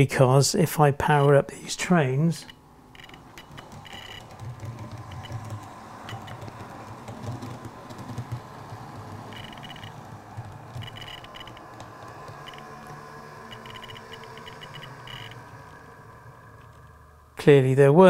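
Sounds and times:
wheels clicking on rails: 2.4 - 16.9.

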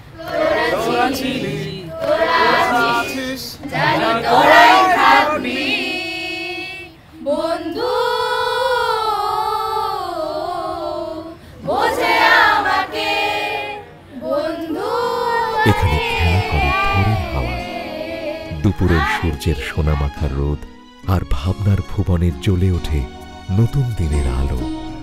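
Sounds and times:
group of young voices singing: 0.0 - 20.2.

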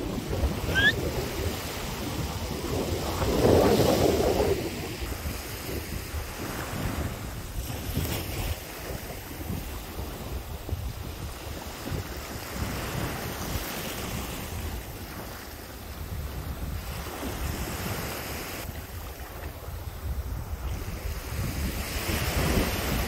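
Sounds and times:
surf washing: 0.0 - 23.0
wind: 0.0 - 23.0
brief rising chirp: 0.7 - 1.0.

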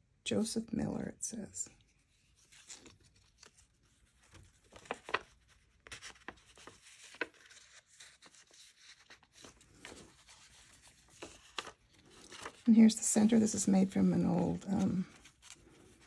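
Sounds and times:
paper rustling and tapping: 4.2 - 12.6.

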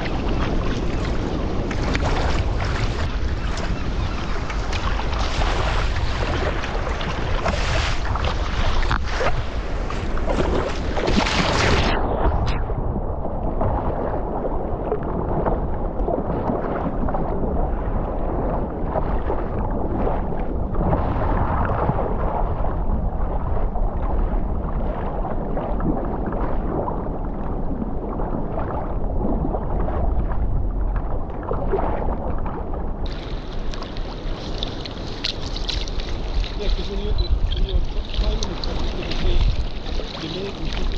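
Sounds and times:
splashing and trickling water: 0.0 - 14.1, 33.0 - 40.9
water sloshing against hull: 0.0 - 40.9
wind rumble on microphone: 0.0 - 40.9.

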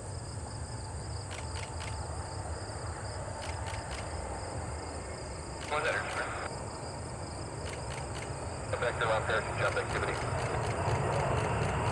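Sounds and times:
crickets chirping: 0.0 - 11.9
faint clicks: 1.3 - 2.0, 3.4 - 4.1, 9.7 - 11.9.

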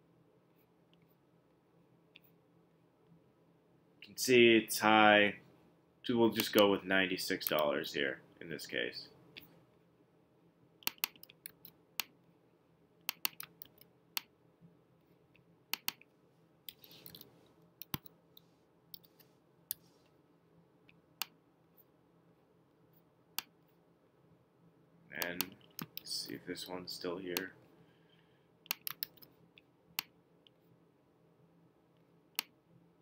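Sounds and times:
keyboard and mouse clicks: 10.8 - 12.2, 13.0 - 14.3, 15.7 - 16.1, 16.7 - 18.1, 25.2 - 26.1, 28.6 - 30.6.

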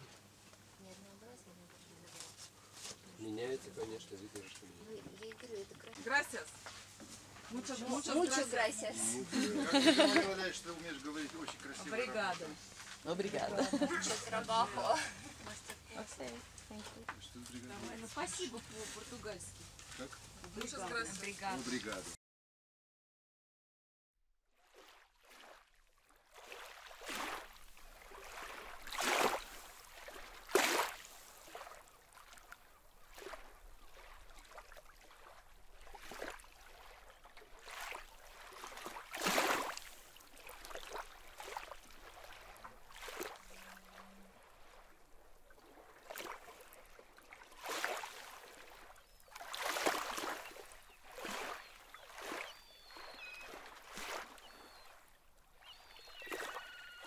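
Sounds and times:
small waves lapping against rocks: 24.6 - 57.0.

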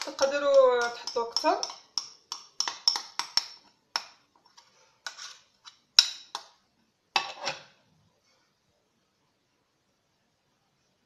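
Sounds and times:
spoon scraping a bowl: 0.0 - 3.6, 4.4 - 6.5, 7.2 - 7.7.

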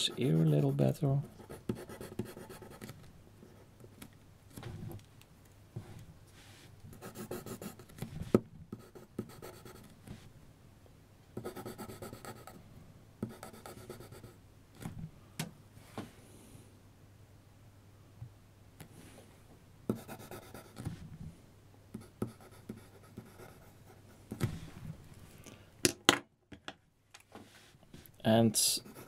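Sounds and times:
pencil scratching across paper: 0.0 - 3.0, 6.9 - 9.9, 11.4 - 12.6, 13.2 - 14.4, 19.9 - 21.0, 22.0 - 24.5, 28.8 - 29.0.

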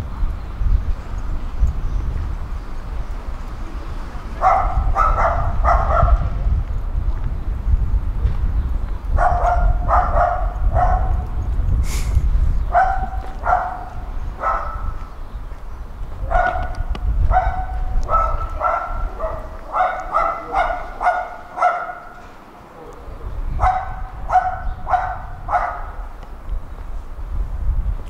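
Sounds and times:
dog barking: 4.4 - 6.4, 9.2 - 11.3, 12.7 - 15.0, 16.2 - 22.2, 23.6 - 26.1.

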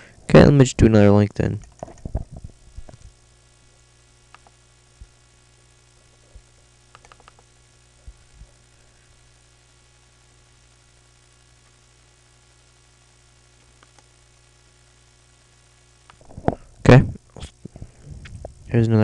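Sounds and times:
faint electrical mains hum: 0.0 - 19.0
soft clicks: 4.3 - 4.6, 6.9 - 7.5, 13.6 - 14.1.

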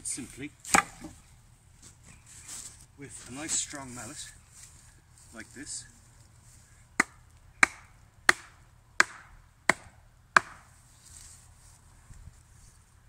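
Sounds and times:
wooden mallet striking wooden post: 0.7 - 1.2, 7.0 - 10.7.

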